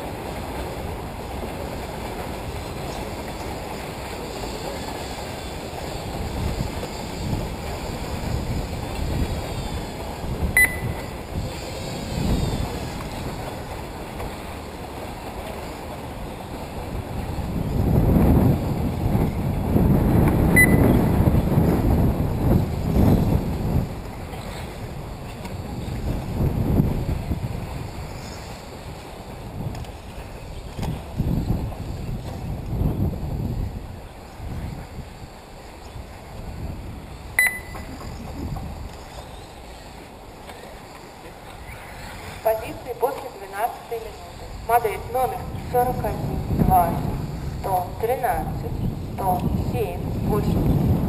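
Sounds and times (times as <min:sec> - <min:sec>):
wind buffeting microphone: 0:00.0 - 0:51.0
short electronic beep: 0:10.6 - 0:11.1, 0:20.6 - 0:21.0, 0:37.4 - 0:38.0.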